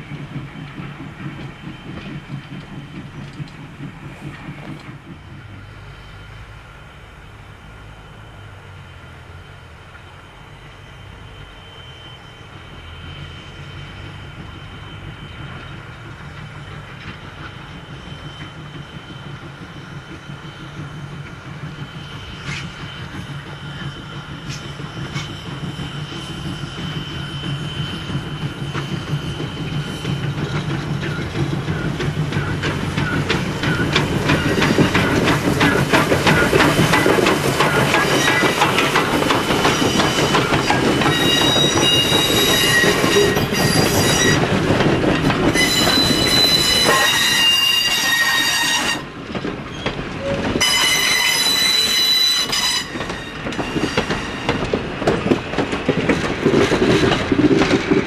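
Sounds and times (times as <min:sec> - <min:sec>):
train wheels clacking: 0:00.0 - 0:06.5, 0:12.6 - 0:58.0
steam locomotive exhaust beats: 0:00.0 - 0:58.0
high-pitched wheel squealing: 0:21.9 - 0:44.5, 0:45.5 - 0:49.1, 0:49.7 - 0:54.7.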